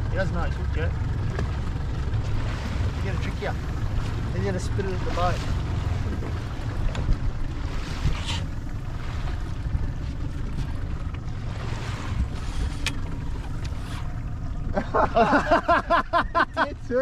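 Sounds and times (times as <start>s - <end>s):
boat and sea rumble: 0.0s - 17.0s
wind buffeting microphone: 0.8s - 14.3s.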